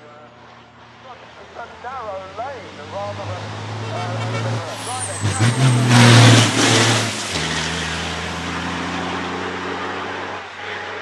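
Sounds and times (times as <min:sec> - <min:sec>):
diesel truck engine driving away: 0:00.0 - 0:11.0.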